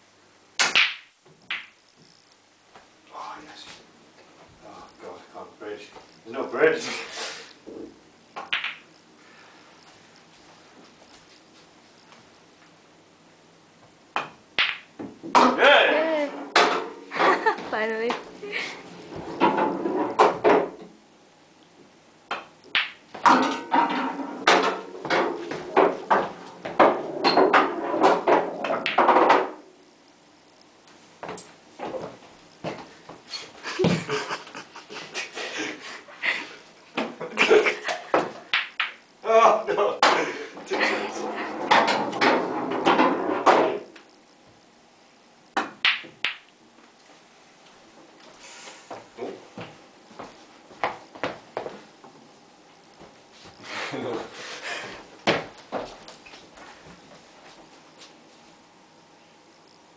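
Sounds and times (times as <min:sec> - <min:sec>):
pool balls knocking: 0:00.6 - 0:01.8, 0:07.7 - 0:08.9, 0:14.1 - 0:18.2, 0:19.1 - 0:21.0, 0:22.3 - 0:29.7, 0:38.1 - 0:39.0, 0:40.0 - 0:44.0, 0:45.6 - 0:46.5.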